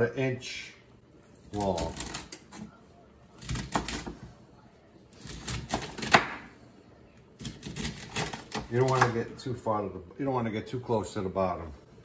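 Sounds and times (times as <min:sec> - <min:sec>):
knife chopping on wooden board: 0:05.2 - 0:06.5.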